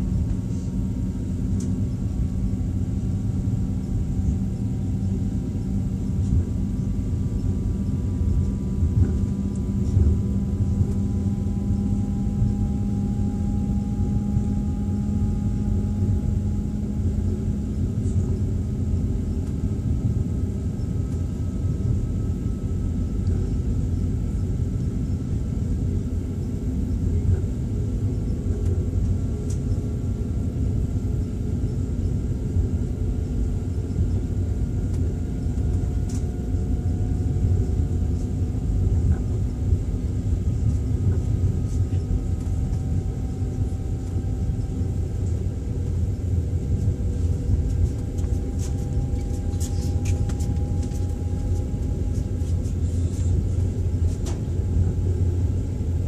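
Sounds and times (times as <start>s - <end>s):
train carriage rumble: 0.0s - 56.0s.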